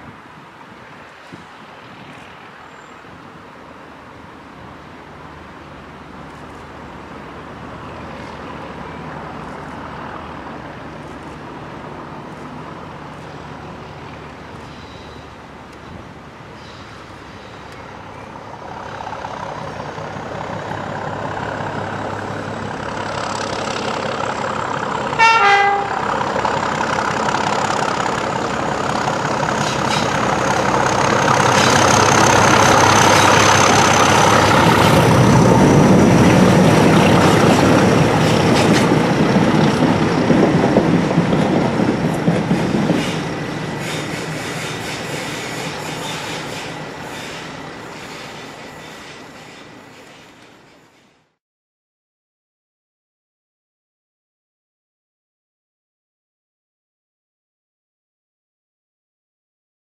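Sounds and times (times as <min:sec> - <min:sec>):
diesel locomotive engines: 0:00.0 - 0:51.4
train horn blast: 0:25.2 - 0:26.2.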